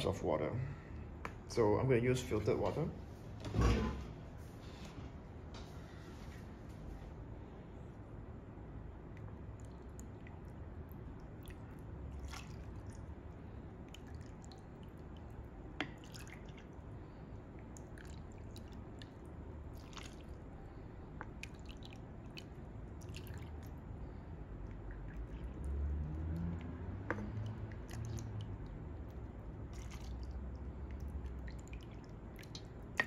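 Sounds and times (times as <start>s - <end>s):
water trickling and dripping: 9.1s - 33.0s.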